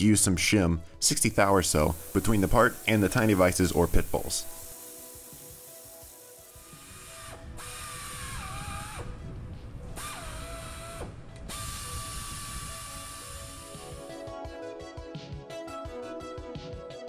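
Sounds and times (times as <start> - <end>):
air hiss: 0.9 - 9.2, 10.0 - 14.1
motor whine: 4.5 - 14.2.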